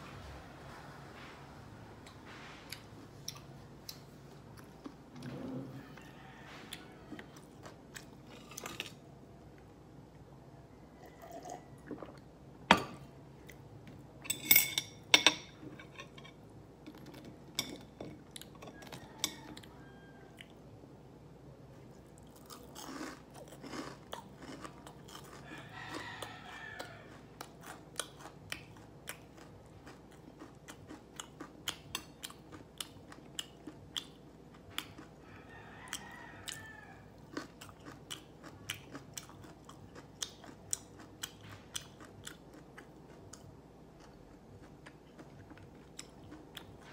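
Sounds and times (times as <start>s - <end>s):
crunchy chewing of fried chicken: 2.2s - 9.6s, 18.1s - 20.6s, 21.8s - 46.9s.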